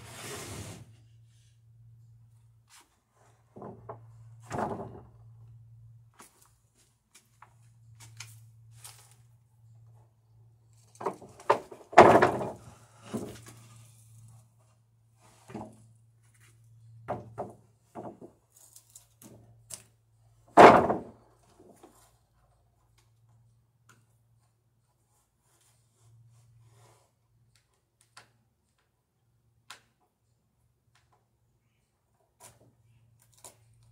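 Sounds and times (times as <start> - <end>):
wooden boards knocking: 11.0 - 12.6, 17.1 - 18.3, 20.6 - 21.2
heavy thuds of boards: 11.5 - 13.3, 20.6 - 21.2.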